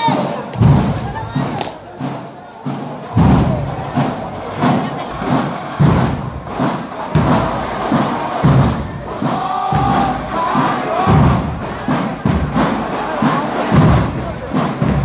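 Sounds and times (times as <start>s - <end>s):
crowd noise: 0.0s - 15.0s
marching band drums: 0.0s - 15.0s
bass drum thumps: 0.6s - 1.6s, 3.1s - 12.8s.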